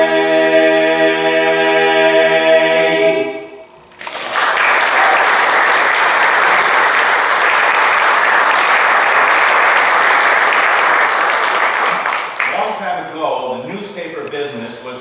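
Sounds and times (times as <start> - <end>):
male vocal quartet singing chord: 0.0 - 3.6
audience applauding: 4.0 - 12.8.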